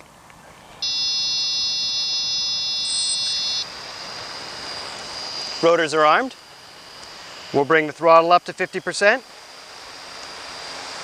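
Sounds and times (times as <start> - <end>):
faint high whine with hiss: 0.0 - 11.0
high-pitched buzzer tone: 0.8 - 7.8
higher buzzer tone: 0.8 - 7.9.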